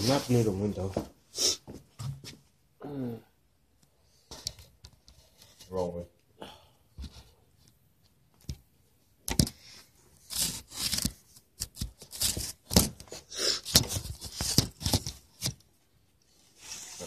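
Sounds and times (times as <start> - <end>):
rustling and scraping: 4.2 - 6.0, 9.3 - 17.0.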